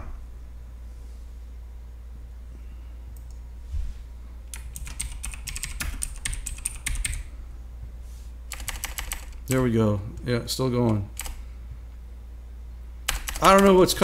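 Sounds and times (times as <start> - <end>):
low steady hum: 0.0 - 14.0
typing on computer keyboard: 4.5 - 7.3, 8.5 - 9.4, 10.9 - 11.4, 13.1 - 13.8.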